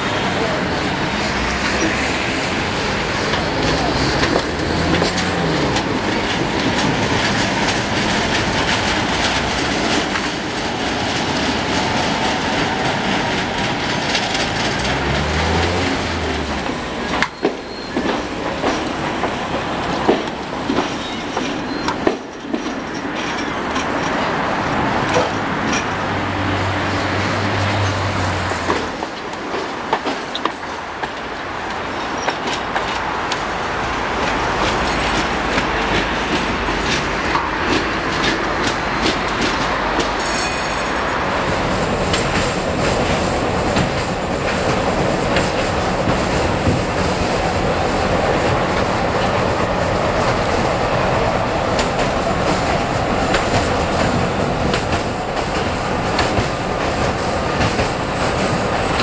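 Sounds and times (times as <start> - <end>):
tram rolling on tracks: 0.0 - 59.0
wheels clicking over rail joints: 0.3 - 59.0
wheel squeal: 17.1 - 18.2, 20.9 - 22.1.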